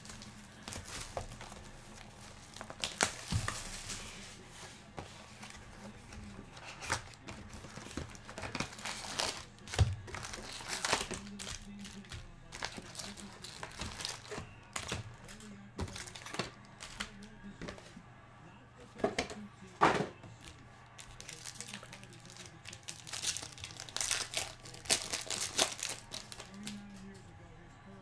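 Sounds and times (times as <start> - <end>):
plastic wrap crinkling and ripping: 0.0 - 4.2, 6.6 - 17.2, 21.0 - 26.8
foil card packs handled: 0.0 - 18.0, 20.3 - 27.2.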